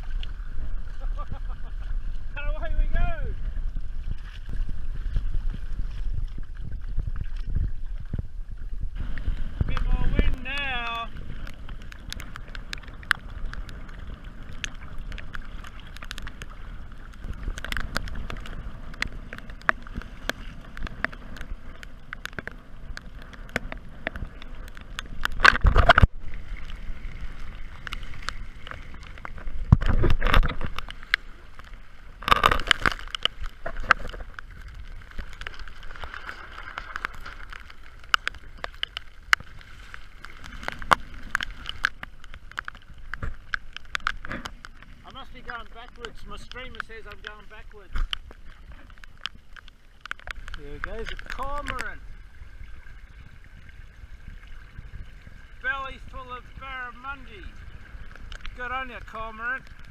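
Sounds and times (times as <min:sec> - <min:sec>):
wind on microphone: 0:00.0 - 0:31.1, 0:50.3 - 0:58.6
water splashing along hull: 0:00.0 - 0:59.9.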